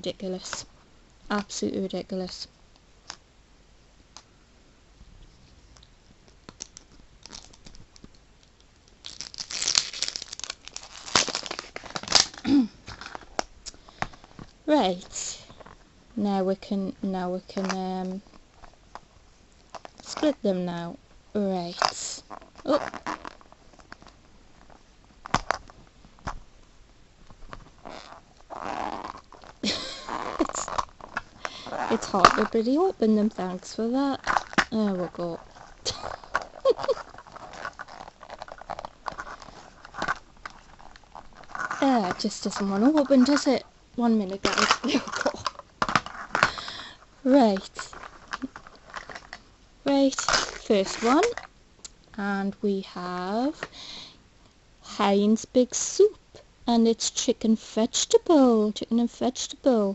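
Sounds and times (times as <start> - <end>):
plastic wrapper crinkling: 5.8 - 15.8, 21.6 - 26.4, 27.3 - 52.0
plastic rubbing and scraping: 27.2 - 46.7, 47.3 - 51.5.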